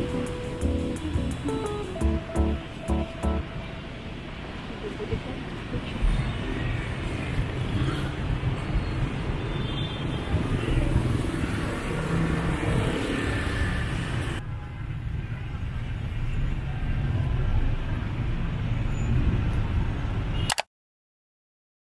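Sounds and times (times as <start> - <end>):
city street traffic rumble: 0.0 - 20.6.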